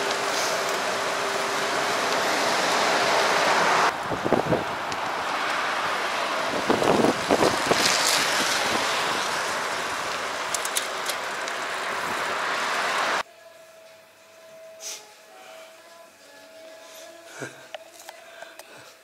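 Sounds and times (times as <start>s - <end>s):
road traffic noise: 0.0s - 13.2s
wind on microphone: 3.9s - 10.5s.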